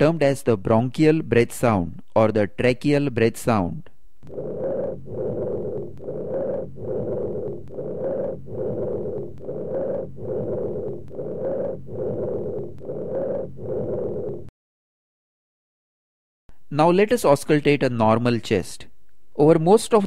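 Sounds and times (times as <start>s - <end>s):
breath sounds through stethoscope: 3.8s - 14.5s.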